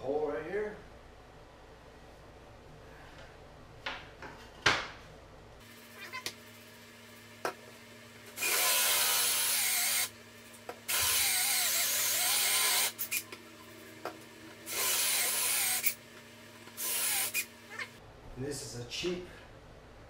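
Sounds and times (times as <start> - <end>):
drill boring through stone tile: 8.4 - 10.1, 10.9 - 13.0, 14.7 - 16.0, 16.8 - 17.4.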